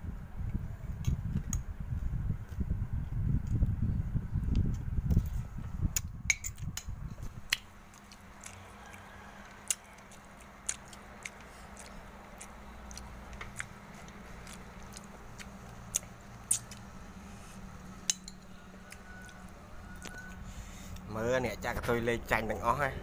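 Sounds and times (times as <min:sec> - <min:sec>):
chewing close to microphone: 0:05.9 - 0:17.0
metal spoon clicking on ceramic plate: 0:18.1 - 0:18.5.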